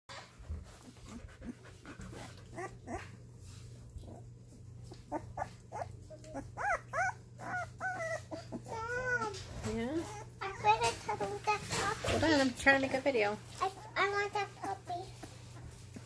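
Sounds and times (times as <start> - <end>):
puppies whimpering and squealing: 0.8 - 12.0.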